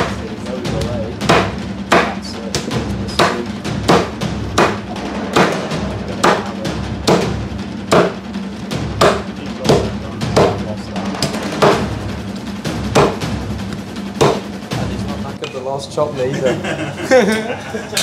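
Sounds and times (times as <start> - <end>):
background music: 0.0 - 18.0
cleaver chopping on wooden block: 1.2 - 4.8, 7.9 - 8.2, 9.0 - 10.6, 13.0 - 14.4.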